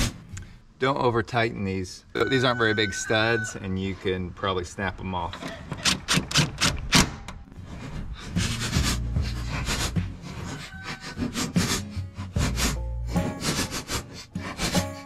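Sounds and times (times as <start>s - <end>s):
impact driver tightening nuts: 5.4s - 7.1s.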